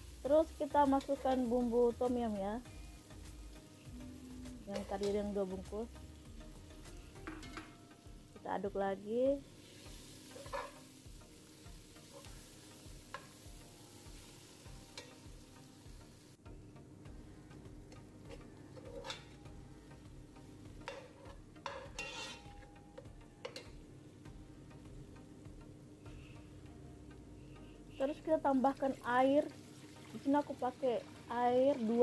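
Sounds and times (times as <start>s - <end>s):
aromatics sizzling in oil: 0.0s - 16.5s, 17.2s - 32.0s
metal spoon scraping and knocking pan: 7.1s - 8.0s, 10.2s - 10.9s, 17.9s - 19.4s, 20.8s - 23.8s.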